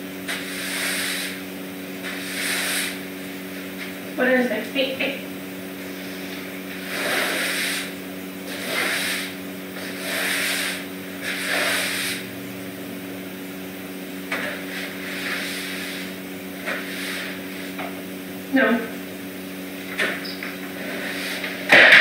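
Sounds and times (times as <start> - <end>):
broom sweeping wooden floor: 0.2 - 4.0, 5.9 - 12.3, 14.3 - 18.0, 20.0 - 22.0.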